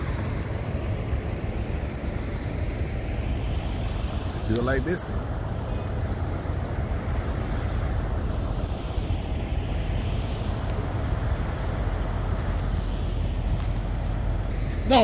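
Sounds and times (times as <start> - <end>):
outdoor background noise: 0.0 - 15.0
truck engines idling: 0.0 - 15.0.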